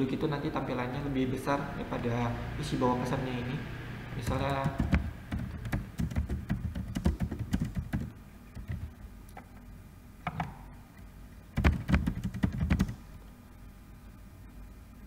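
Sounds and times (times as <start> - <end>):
keyboard typing: 4.2 - 9.0, 11.6 - 13.0.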